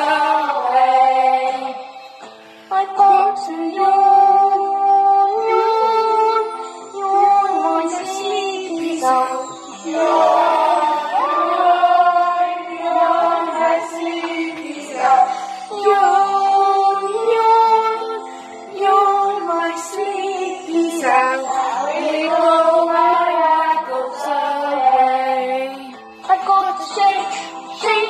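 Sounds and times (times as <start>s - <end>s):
recorded backing track: 0.0s - 28.0s
woman singing: 2.7s - 10.0s, 13.8s - 28.0s.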